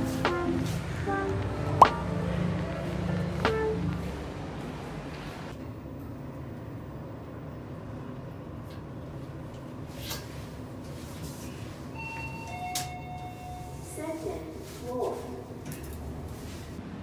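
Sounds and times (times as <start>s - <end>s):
lift low rumble: 0.0s - 5.6s.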